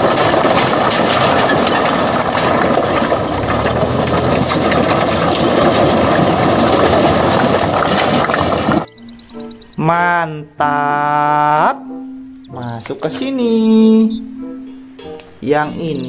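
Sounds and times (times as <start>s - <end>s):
stones clattering out of truck bed: 0.0s - 8.9s
low rumble: 1.8s - 8.9s.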